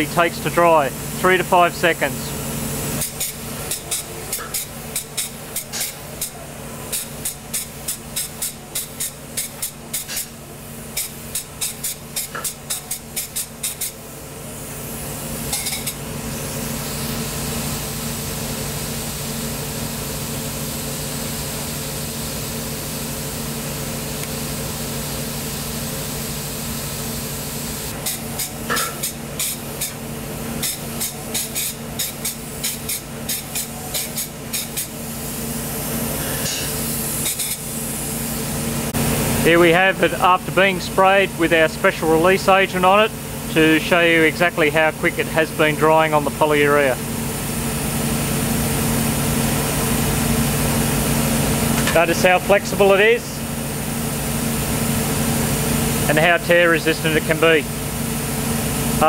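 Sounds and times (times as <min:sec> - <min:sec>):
low hum of spray equipment: 0:00.0 - 0:59.0
spray gun hissing: 0:00.7 - 0:39.5.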